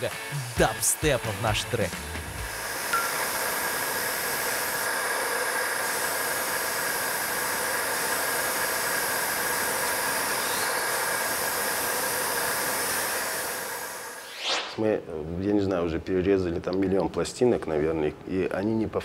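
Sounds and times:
stone-cutting saw whining: 0.7 - 14.8.

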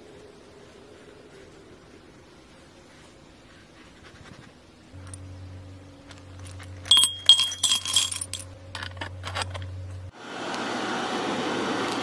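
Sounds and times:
steady low hum: 0.0 - 10.4
metal pieces clinking in steel can: 6.4 - 9.7.

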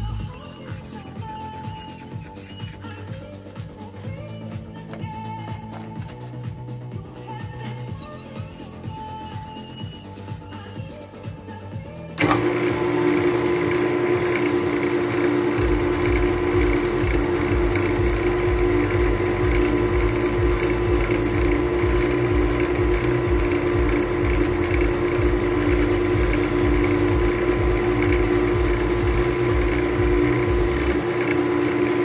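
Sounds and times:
music: 0.0 - 32.0
wood lathe motor hum: 12.2 - 32.0
low rapid rhythmic thrumming: 12.9 - 32.0.

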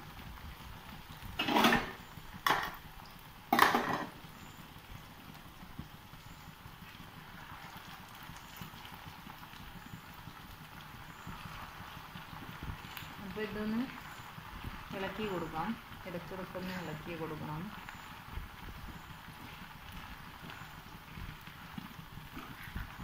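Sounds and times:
potatoes sizzling in oil: 0.0 - 23.0
wooden spatula knocking pan: 3.5 - 4.2.

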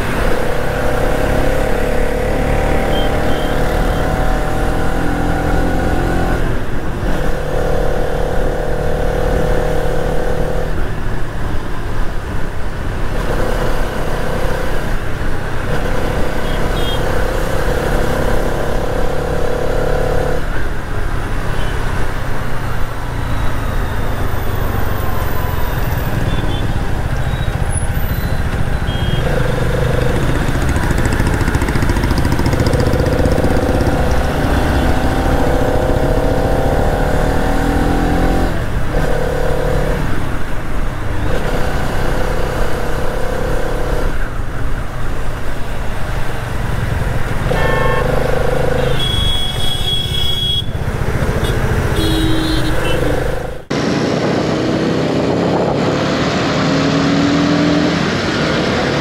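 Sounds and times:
wind and road noise: 0.0 - 59.0
motorcycle engine running: 26.3 - 36.7.

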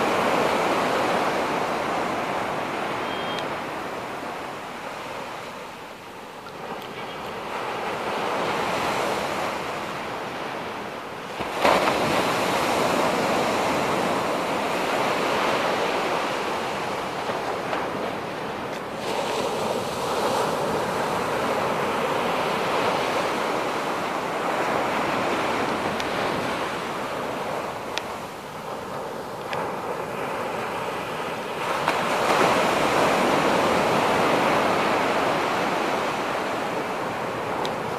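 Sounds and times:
waves rushing on beach: 0.0 - 37.9.

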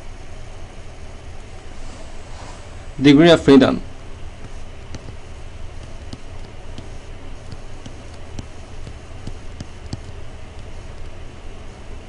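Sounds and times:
low hum and hiss: 0.0 - 12.0
stylus tapping on tablet screen: 4.4 - 5.2, 5.8 - 11.2.

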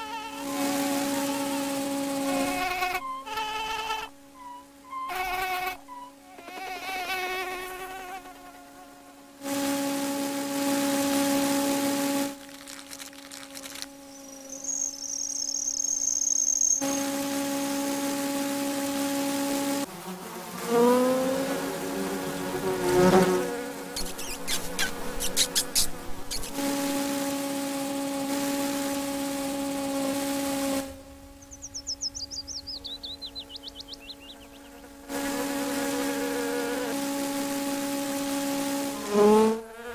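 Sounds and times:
loud full buzz: 0.0 - 16.0, 16.8 - 39.9
faint hum: 0.0 - 19.9, 21.2 - 39.7
cartoon insect wing buzz: 0.0 - 39.9
chirpy squeaks: 2.8 - 6.2, 14.1 - 16.8, 24.0 - 26.6
rapid falling twittering: 11.0 - 17.3, 23.9 - 27.2, 31.3 - 36.4
quick sharp clicks: 12.4 - 13.9.

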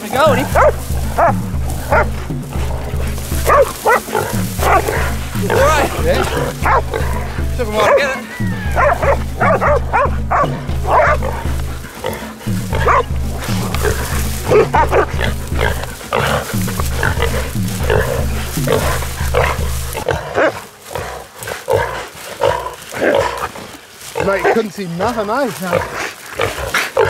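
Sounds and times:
background music with bass line: 0.0 - 20.3
wild boar squealing: 0.0 - 27.0.

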